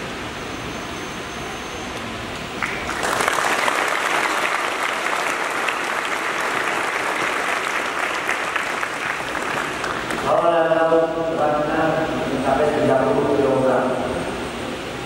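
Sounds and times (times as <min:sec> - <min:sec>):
audience applauding: 0:02.6 - 0:10.4.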